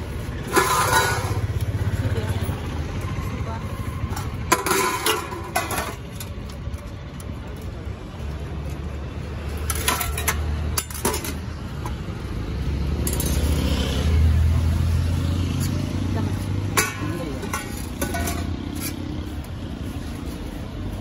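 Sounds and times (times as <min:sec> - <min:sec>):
ladle clinking against metal pots: 0:00.5 - 0:01.5, 0:04.2 - 0:06.4, 0:09.6 - 0:11.5, 0:16.7 - 0:19.0.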